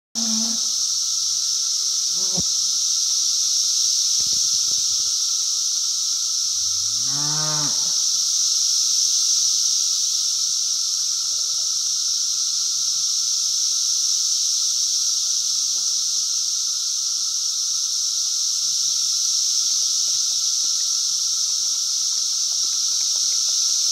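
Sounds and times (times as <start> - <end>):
cicada chorus drone: 0.2 - 23.9
cow mooing: 6.7 - 8.0.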